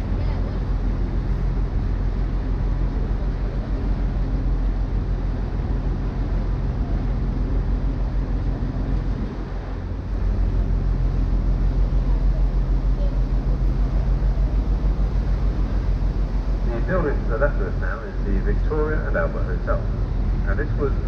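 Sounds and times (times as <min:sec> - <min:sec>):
boat engine humming: 0:00.0 - 0:21.0.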